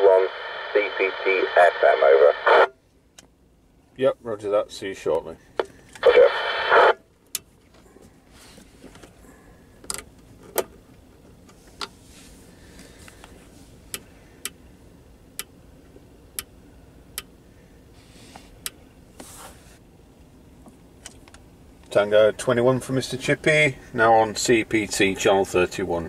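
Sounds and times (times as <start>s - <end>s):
radio hiss: 0.0s - 2.7s, 6.0s - 7.0s.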